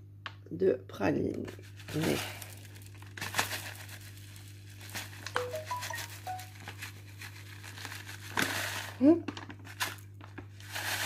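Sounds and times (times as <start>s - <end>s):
plastic packet crinkling: 1.5s - 11.0s
brief high tones: 5.4s - 6.6s.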